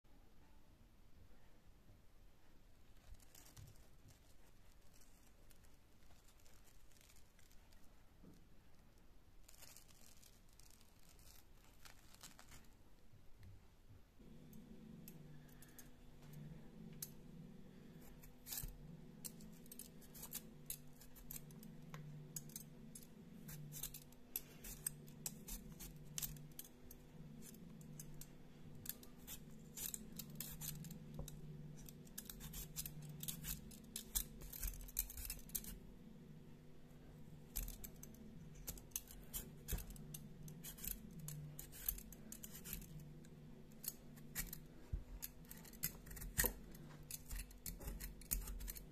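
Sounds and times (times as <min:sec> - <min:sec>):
steady low hum: 0:12.9 - 0:48.9
peeler scraping potato: 0:14.8 - 0:35.9, 0:37.5 - 0:48.9.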